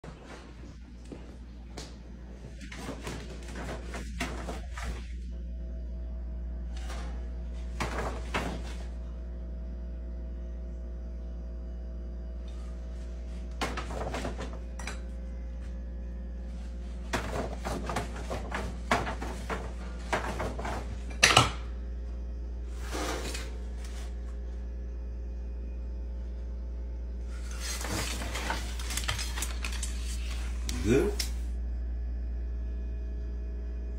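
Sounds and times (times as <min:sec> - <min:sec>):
steady low hum: 0:00.0 - 0:33.9
paper bag rustling and crinkling: 0:27.3 - 0:30.7.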